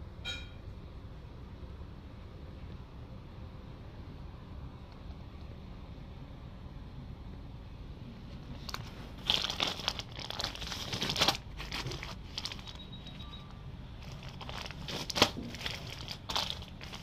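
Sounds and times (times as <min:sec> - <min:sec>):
low steady hum: 0:00.0 - 0:17.0
plastic bags crinkling: 0:08.6 - 0:12.9, 0:14.0 - 0:17.0.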